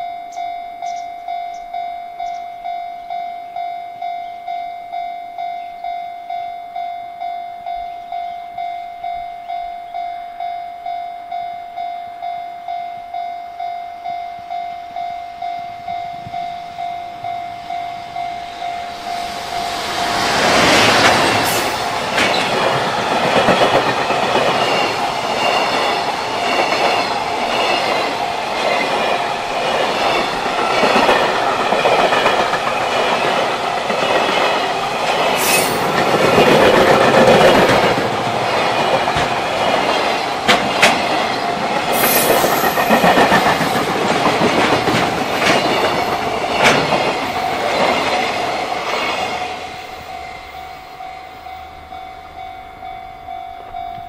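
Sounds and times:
level-crossing warning bell: 0.0 - 54.0
freight train rumbling past: 7.7 - 54.0
wheels clicking over rail joints: 20.2 - 49.3.

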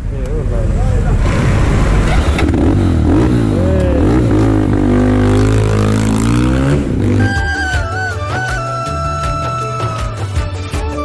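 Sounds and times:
motorcycle engines revving: 0.0 - 8.1.

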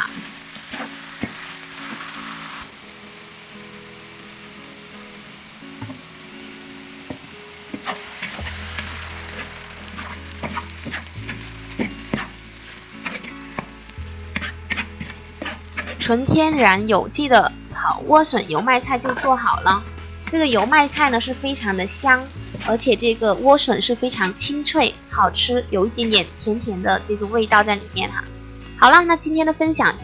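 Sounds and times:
spatula scraping a wok: 0.0 - 2.7, 6.8 - 24.7
vegetables sizzling in oil: 0.0 - 30.0.

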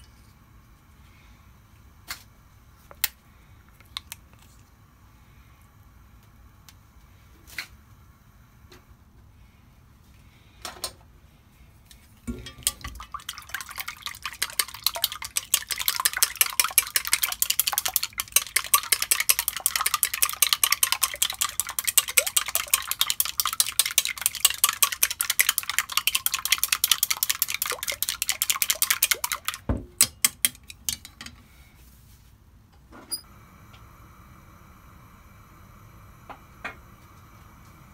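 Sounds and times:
chopsticks beating eggs in metal pot: 12.3 - 31.4
chopsticks tapping pot: 14.5 - 31.4.

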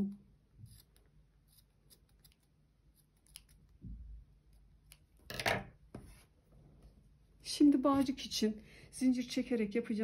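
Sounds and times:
scissors snipping: 0.6 - 3.8, 4.4 - 5.2.

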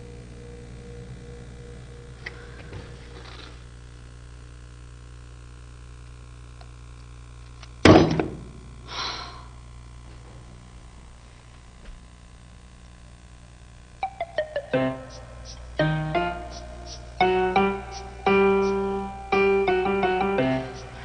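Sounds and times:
low steady hum: 0.0 - 21.0
breathy sigh: 8.8 - 9.6.

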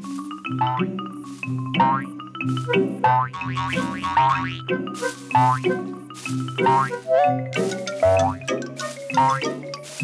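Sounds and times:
bouncy cartoon music: 0.0 - 10.0.

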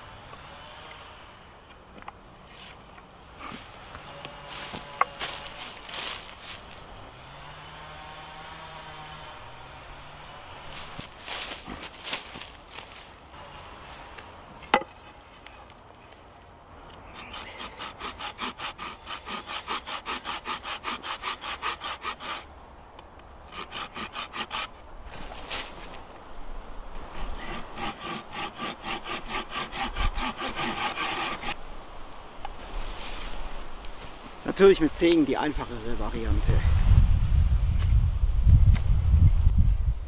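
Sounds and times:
hand saw cutting wood: 3.4 - 12.4, 17.1 - 22.5, 23.5 - 24.8, 27.1 - 31.6.

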